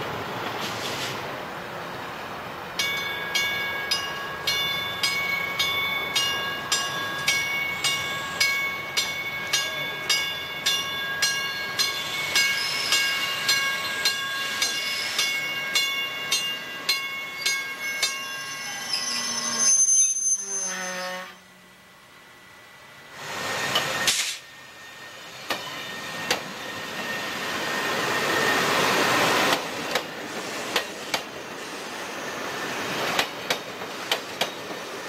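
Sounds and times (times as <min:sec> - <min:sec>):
passing train: 0:00.0 - 0:35.0
railroad warning bell ringing: 0:02.7 - 0:22.8
high squeal: 0:17.2 - 0:21.6, 0:23.1 - 0:29.4, 0:31.4 - 0:33.1.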